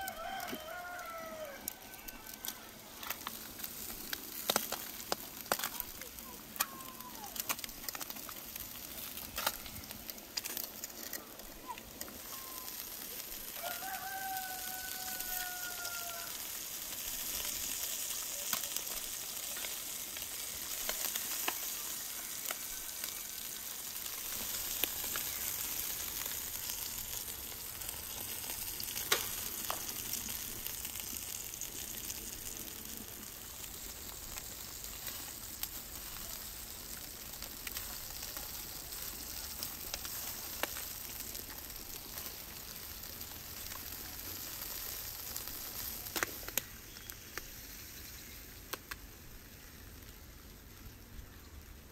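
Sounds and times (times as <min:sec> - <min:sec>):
rooster crowing: 0:00.0 - 0:02.9, 0:13.4 - 0:16.5, 0:21.8 - 0:23.6
crackles and pops: 0:00.0 - 0:51.9
fat sizzling on hot charcoal: 0:00.0 - 0:51.9.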